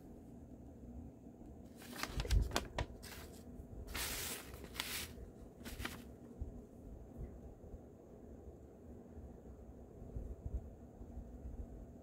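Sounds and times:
paper rustling and crinkling: 0:01.7 - 0:06.2.

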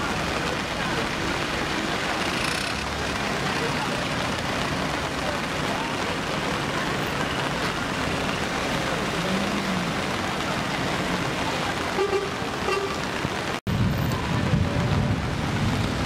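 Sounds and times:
floodwater rushing: 0:00.0 - 0:16.0
traffic noise: 0:00.0 - 0:16.0
car horn toot: 0:11.9 - 0:13.0.

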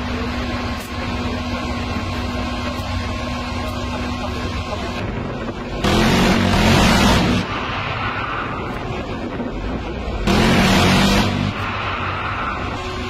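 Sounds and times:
howitzer firing blast: 0:05.8 - 0:07.7, 0:10.2 - 0:11.8.

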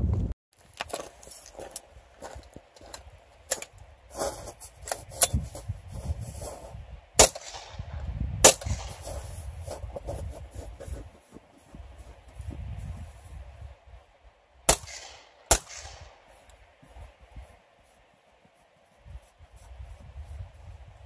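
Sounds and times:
suppressed rifle shots: 0:07.2 - 0:09.1, 0:14.7 - 0:16.2.

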